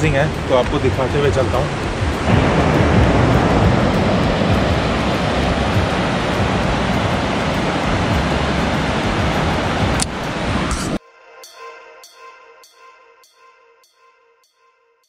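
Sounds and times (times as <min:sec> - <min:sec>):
loud rushing noise: 0:00.0 - 0:11.0.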